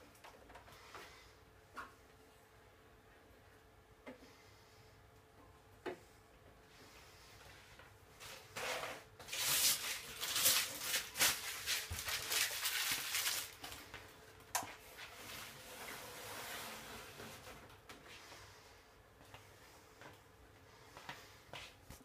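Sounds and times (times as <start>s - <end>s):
rustling and handling noise: 6.4s - 18.6s.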